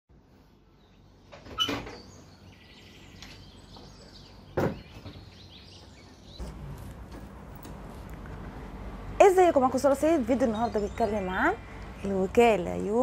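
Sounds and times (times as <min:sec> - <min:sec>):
wooden shutter knocks: 0:04.5 - 0:05.3.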